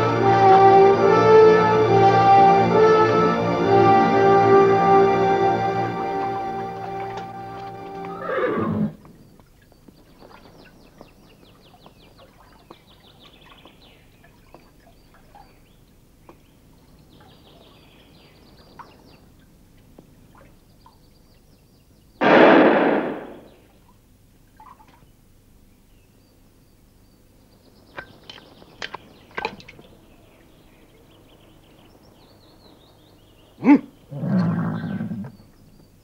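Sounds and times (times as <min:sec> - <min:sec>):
music cue: 0:00.0 - 0:08.2
faint outdoor chirping: 0:06.3 - 0:22.2, 0:23.0 - 0:36.0
horse whinnying: 0:07.6 - 0:09.0, 0:33.6 - 0:35.3.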